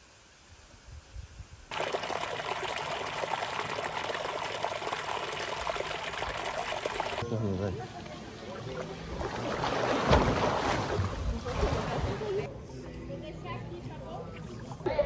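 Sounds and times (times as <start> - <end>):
stream trickling over stones: 1.7 - 7.2.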